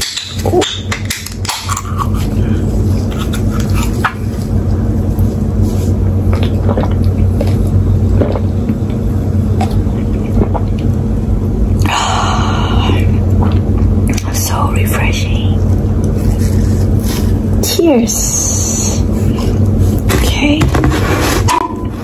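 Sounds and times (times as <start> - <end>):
steady low hum: 0.0 - 22.0
gulping and swallowing: 0.4 - 4.7, 6.1 - 11.1, 12.8 - 14.3.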